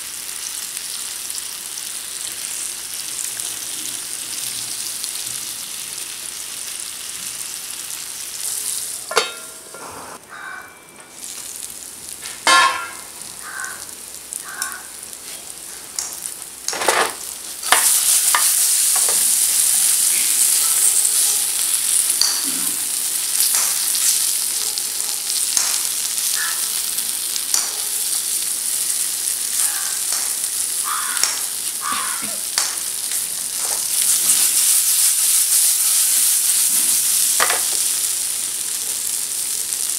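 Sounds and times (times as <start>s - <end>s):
banana slices sizzling in oil: 0.0s - 9.7s, 10.3s - 39.9s
wooden sticks knocking on pan: 9.1s - 9.6s, 12.4s - 13.1s, 31.2s - 32.8s.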